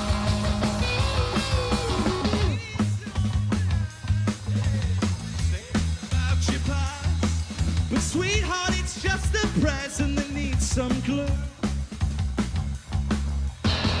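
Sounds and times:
live rock band playing: 0.0 - 14.0
man singing lead vocal: 2.2 - 11.7.

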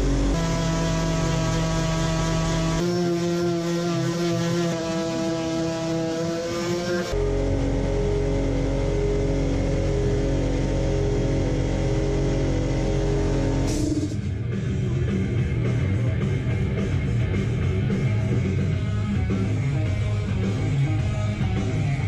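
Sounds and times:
rock music on radio: 13.2 - 22.0.

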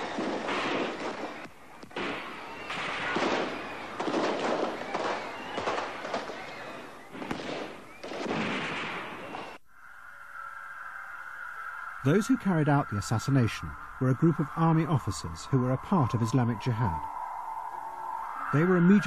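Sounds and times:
crackling gunfire: 0.0 - 9.6.

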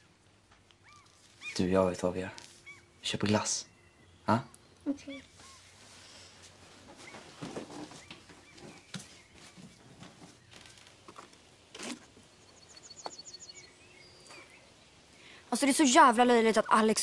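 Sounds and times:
bird chirps: 0.8 - 1.8, 2.6 - 5.8, 7.0 - 9.8, 12.3 - 15.4.

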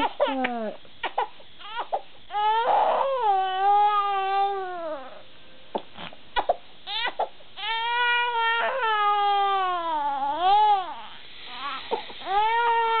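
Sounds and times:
infant crying: 1.6 - 5.2, 6.9 - 13.0.

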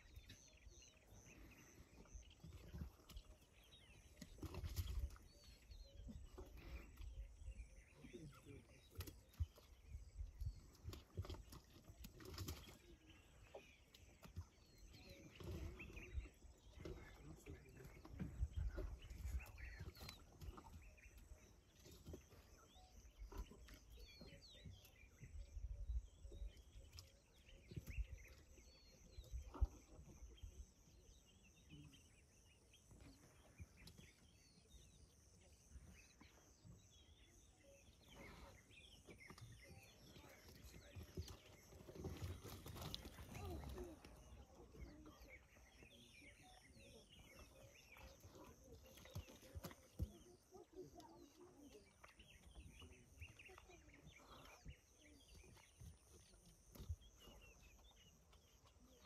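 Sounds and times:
faint bird chirps: 0.0 - 59.0.

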